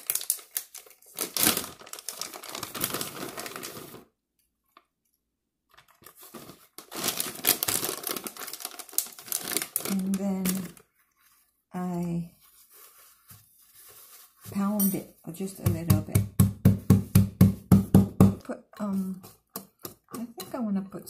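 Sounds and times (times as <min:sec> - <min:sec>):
plastic bag crinkling: 0:00.0 - 0:04.2, 0:05.7 - 0:11.4.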